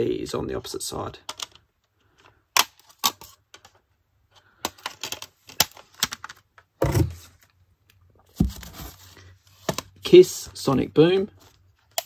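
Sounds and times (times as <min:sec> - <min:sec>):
plastic cd cases clicking: 0:01.2 - 0:03.8, 0:04.6 - 0:06.7.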